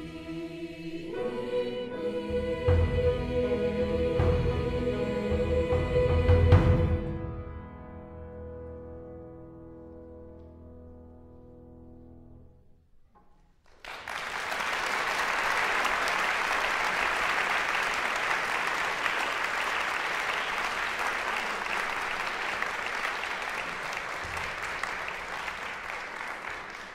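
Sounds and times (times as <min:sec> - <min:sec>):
audience applause: 0:13.6 - 0:26.9.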